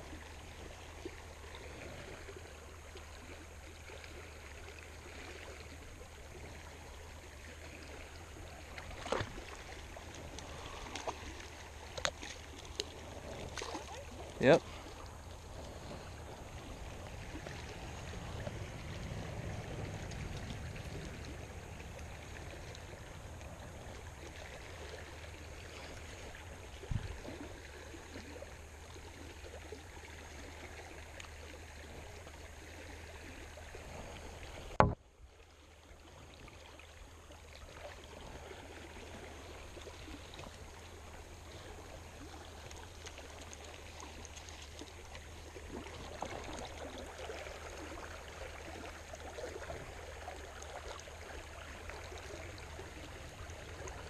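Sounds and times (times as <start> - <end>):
creek water running: 0.0 - 54.0
dull bump: 34.8 - 35.0
sharp knock: 34.8 - 35.0.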